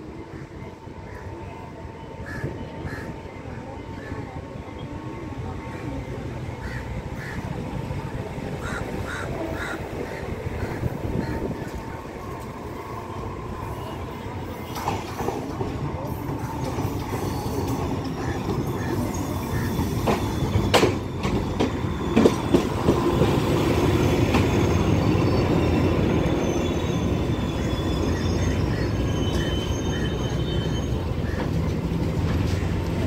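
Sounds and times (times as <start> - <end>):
diesel train rumbling: 0.0 - 33.0
train wheels clicking over rail joints: 14.7 - 23.5.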